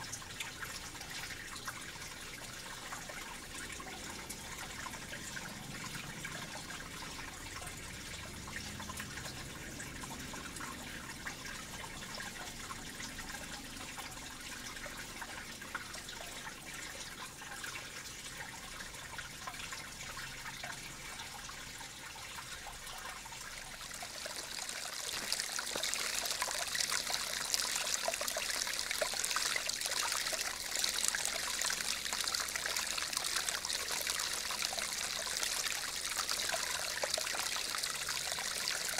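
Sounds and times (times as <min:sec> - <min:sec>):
brook trickling over stones: 0:00.0 - 0:38.9.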